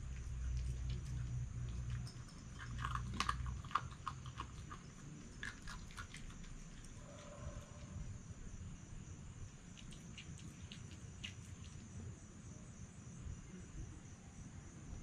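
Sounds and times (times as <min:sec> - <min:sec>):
fox crunching food: 0:00.0 - 0:08.0, 0:09.6 - 0:12.0
low steady hum: 0:00.0 - 0:15.0.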